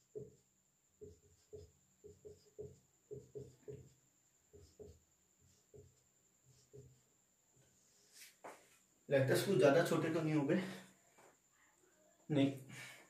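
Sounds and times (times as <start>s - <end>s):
marker pen writing on whiteboard: 0.0s - 8.8s.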